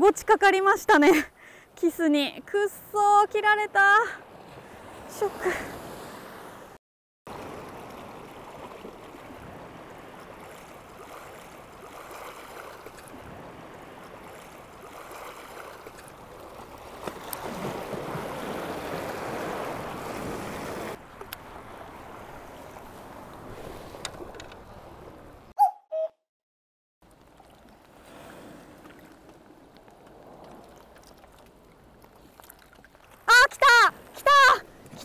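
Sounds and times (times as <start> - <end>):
small waves washing against rocks: 7.3 - 25.2, 27.2 - 33.3.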